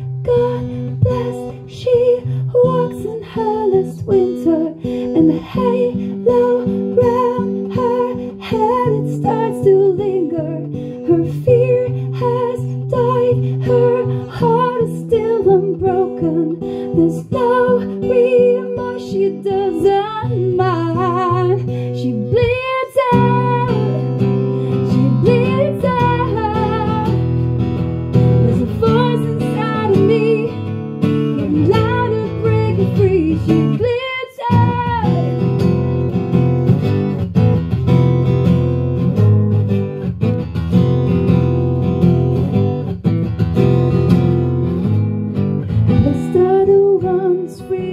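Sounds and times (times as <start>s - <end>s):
woman singing with vibrato: 0.0s - 27.4s, 28.2s - 35.6s, 45.9s - 47.9s
strummed acoustic guitar: 0.0s - 47.9s.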